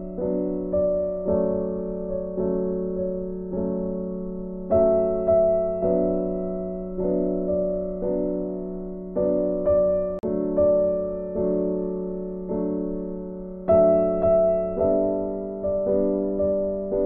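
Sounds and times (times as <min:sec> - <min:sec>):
slow keyboard chords: 0:00.0 - 0:17.0.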